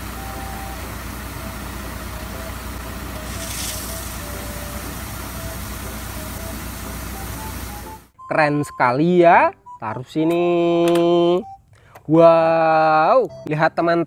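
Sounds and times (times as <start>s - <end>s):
truck engine running: 0.0s - 8.1s
water spray hissing: 3.2s - 7.9s.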